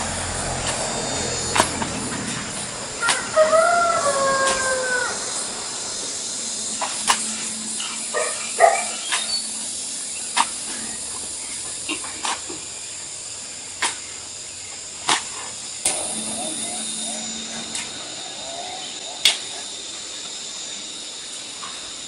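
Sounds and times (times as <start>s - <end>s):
dog barking: 8.1s - 9.2s
hoe scraping soil: 15.0s - 19.5s.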